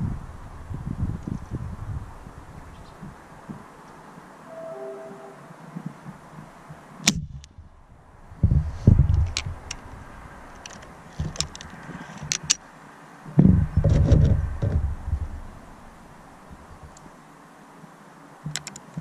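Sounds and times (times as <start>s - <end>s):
heavy low thumps: 7.2s - 10.4s, 13.4s - 17.0s.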